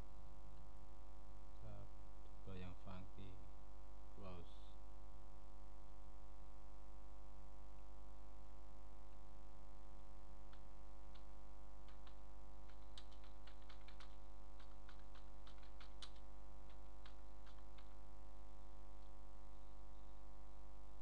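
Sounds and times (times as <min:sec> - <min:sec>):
steady electrical hum: 0:00.0 - 0:21.0
computer keyboard keys clicking: 0:10.5 - 0:18.0.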